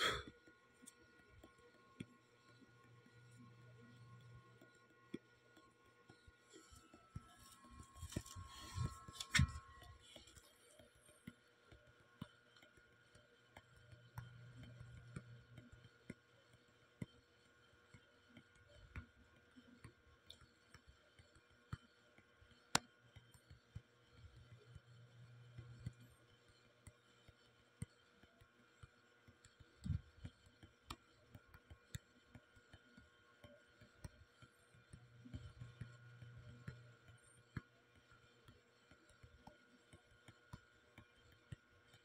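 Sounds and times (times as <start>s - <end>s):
faint low hum: 0.0s - 17.8s, 22.6s - 29.0s, 33.0s - 42.0s.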